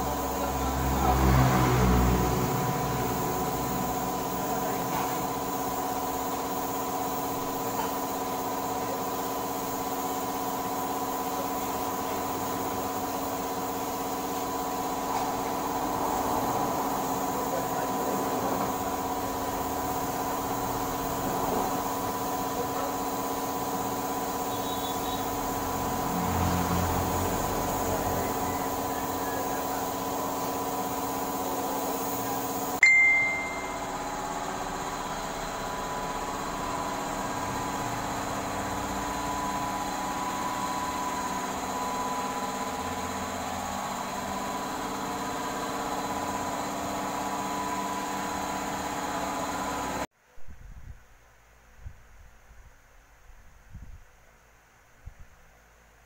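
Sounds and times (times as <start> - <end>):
machine droning: 0.0 - 50.1.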